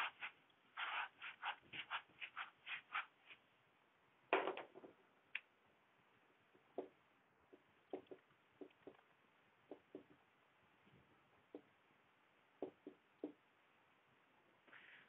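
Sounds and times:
duster rubbing on whiteboard: 0.0s - 3.4s.

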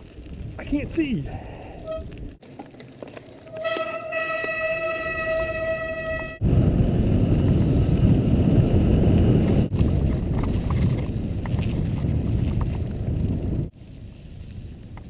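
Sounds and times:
bike clicks and rattles: 0.0s - 1.0s, 1.8s - 6.0s, 7.0s - 15.0s
tyres rumbling on dirt trail: 0.0s - 15.0s
wind on microphone: 3.6s - 15.0s.

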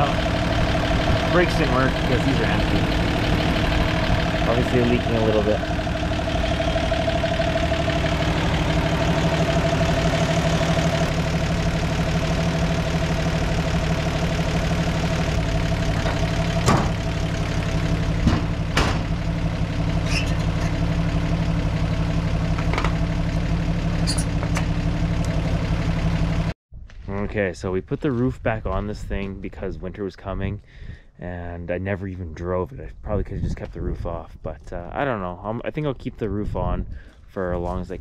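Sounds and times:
car engine idling: 0.0s - 26.5s.

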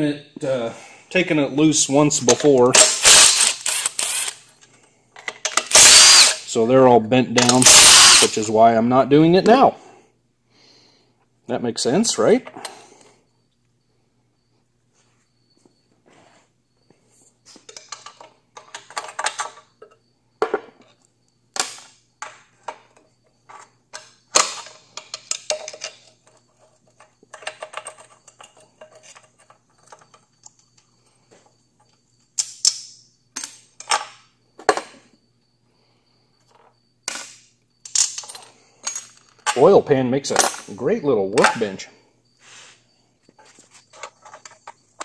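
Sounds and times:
screwdriver clinking on metal: 7.4s - 8.4s.

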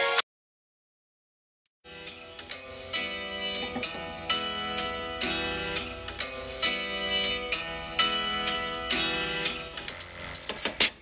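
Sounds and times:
plucked guitar melody: 3.4s - 5.4s.

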